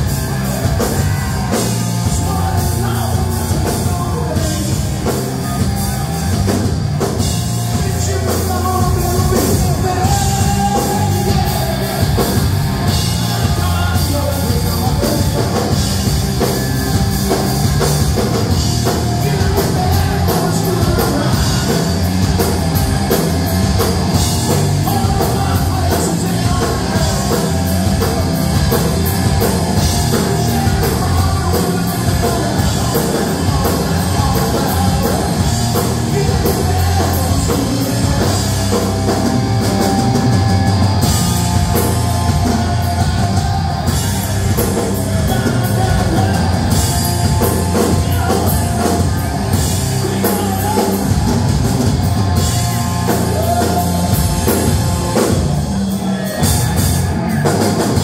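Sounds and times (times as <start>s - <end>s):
bass guitar: 0.0s - 58.0s
drum kit beat: 0.0s - 58.0s
electric guitar: 0.0s - 58.0s.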